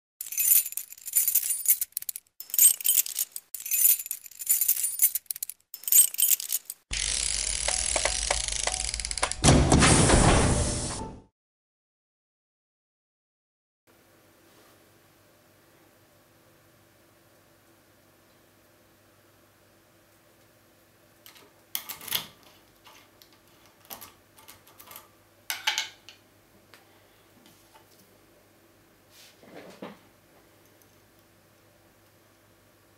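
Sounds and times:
bright metallic jingling: 0.2s - 9.2s.

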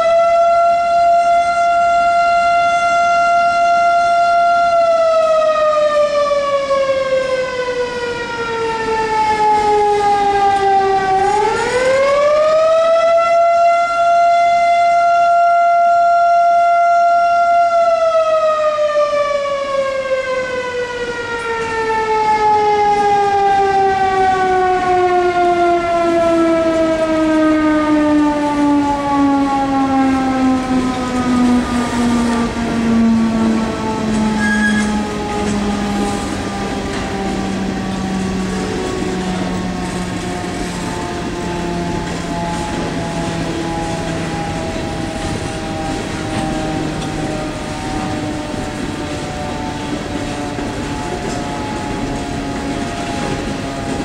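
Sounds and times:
mechanical warning siren wailing: 0.0s - 54.0s.

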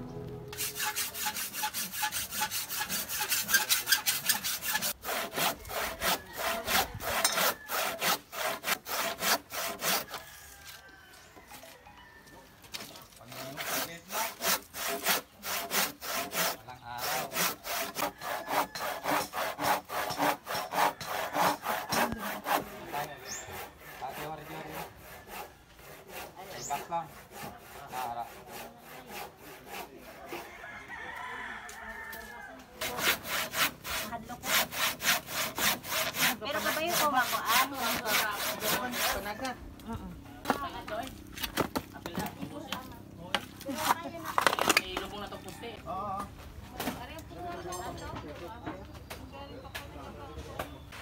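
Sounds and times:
handsaw cutting wood: 0.5s - 10.2s, 13.2s - 30.5s, 32.8s - 39.6s, 40.4s - 45.1s.

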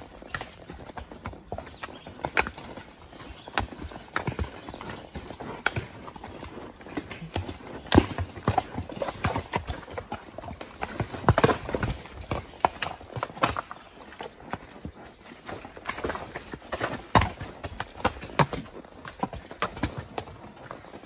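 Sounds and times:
horse hoofbeats on dirt: 0.0s - 21.0s.

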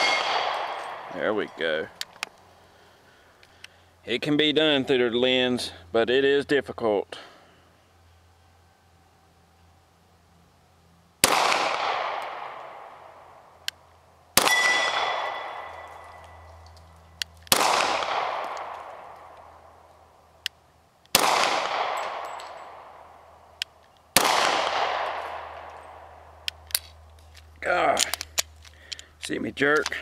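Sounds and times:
steel target ringing: 0.0s - 1.2s, 14.4s - 16.2s
pistol shots echoing: 0.0s - 1.5s, 11.2s - 13.1s, 14.4s - 16.2s, 17.5s - 19.6s, 21.1s - 23.2s, 24.1s - 26.5s.

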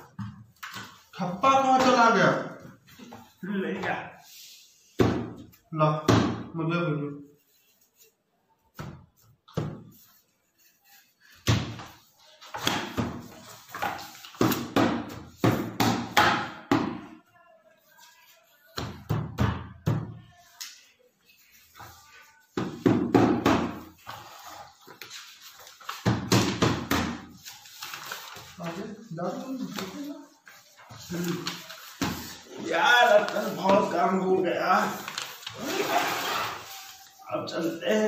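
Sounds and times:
stamping papers on wooden desk: 11.4s - 17.1s, 22.5s - 28.2s.

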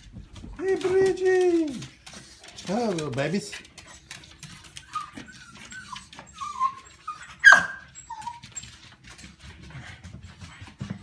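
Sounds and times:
claws clicking on wooden floor: 0.0s - 7.1s
dogs whining: 3.9s - 9.0s
dog yelp: 4.8s - 8.7s.

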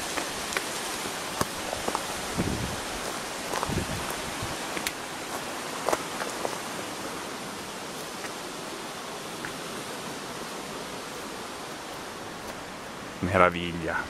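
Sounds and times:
torrent rushing over rocks: 0.0s - 7.2s.

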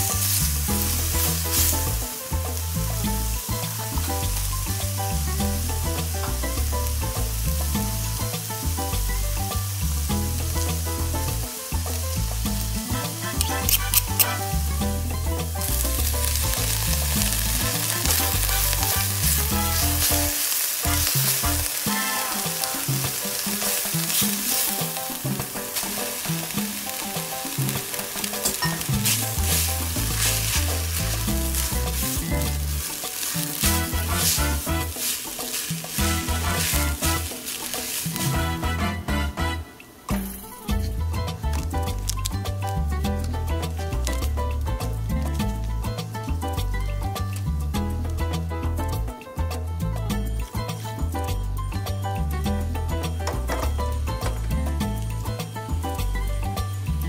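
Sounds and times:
background music: 0.0s - 57.0s
food sizzling in hot oil: 0.0s - 57.0s
spatula stirring in pan: 15.5s - 39.5s.

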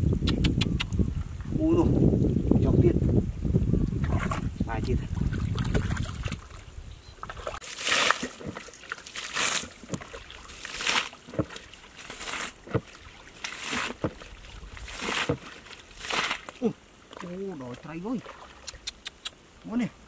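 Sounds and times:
water scooped and splashed: 5.1s - 6.6s, 7.2s - 18.7s.

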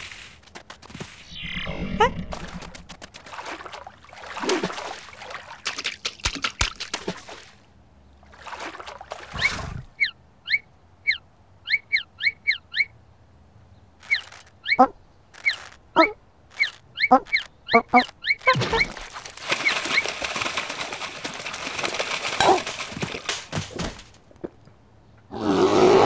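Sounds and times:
cartoon scuffling and splashing: 0.0s - 9.9s, 14.0s - 24.6s.

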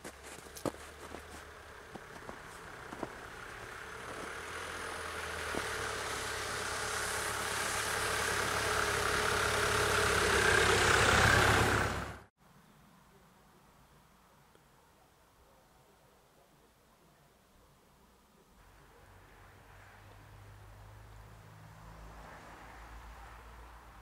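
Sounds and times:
car driving on snowy road: 0.0s - 12.3s, 18.6s - 24.0s.

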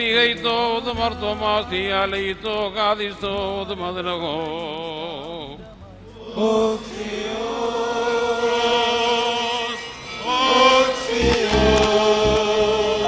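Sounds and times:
voices chanting long notes: 6.2s - 13.0s.

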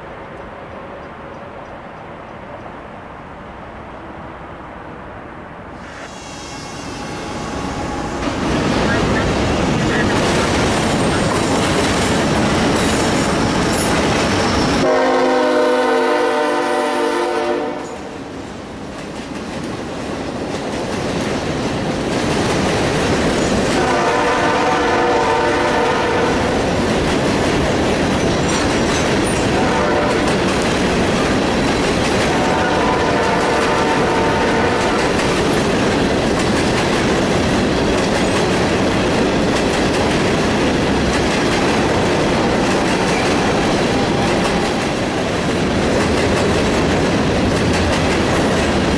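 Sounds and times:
diesel locomotive rumbling: 0.0s - 48.9s
train wheels clattering over rail joints: 8.2s - 14.8s, 18.8s - 23.9s, 25.2s - 48.9s
multi-tone train horn: 14.8s - 18.2s, 23.7s - 26.6s, 29.5s - 30.4s, 32.2s - 35.2s.

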